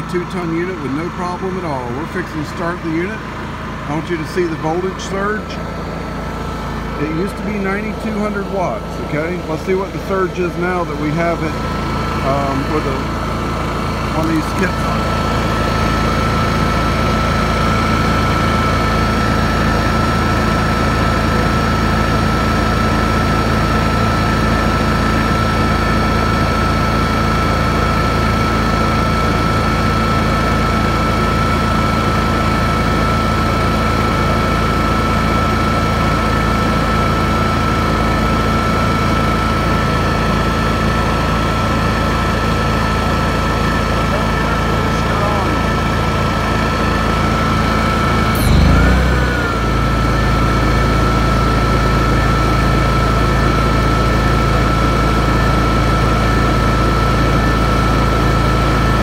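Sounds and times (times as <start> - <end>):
high whine: 0.0 - 19.2, 43.4 - 55.8
generator engine running: 0.0 - 59.0.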